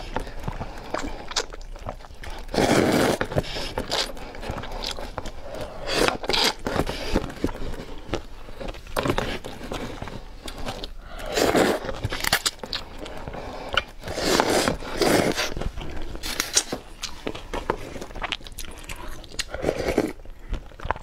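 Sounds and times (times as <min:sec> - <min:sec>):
noodles being slurped: 0:00.0 - 0:07.7, 0:09.2 - 0:16.7
chewing: 0:00.0 - 0:21.0.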